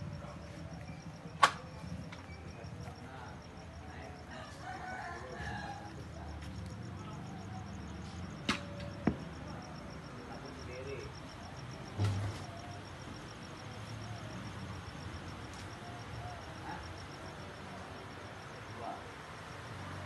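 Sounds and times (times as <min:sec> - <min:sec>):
faint pulsing high chirp: 0:00.0 - 0:04.5
dull thump: 0:08.5 - 0:09.4.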